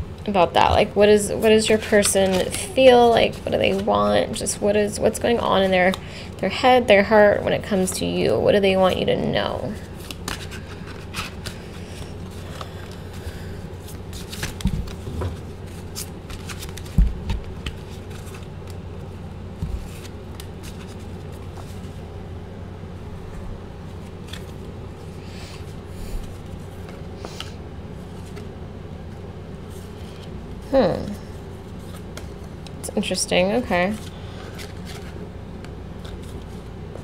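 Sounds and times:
cards being shuffled: 1.4s - 6.0s, 9.6s - 22.0s, 23.9s - 28.5s, 31.1s - 32.8s, 33.9s - 37.0s.

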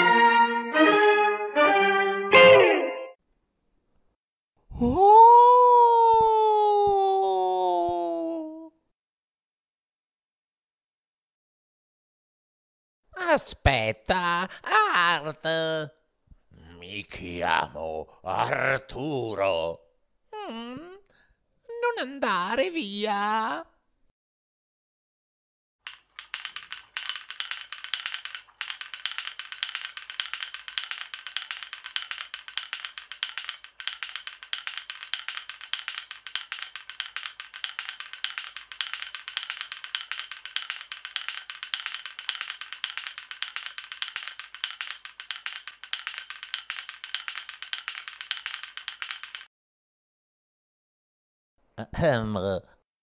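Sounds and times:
dry rattling percussion: 25.8s - 49.5s.

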